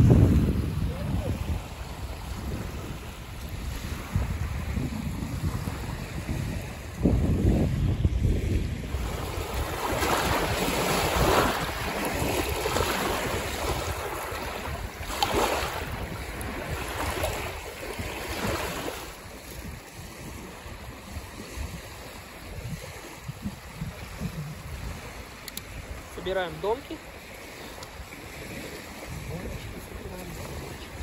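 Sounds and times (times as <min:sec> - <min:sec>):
small waves washing ashore: 0:00.0 - 0:31.0
wind buffeting microphone: 0:00.0 - 0:31.0.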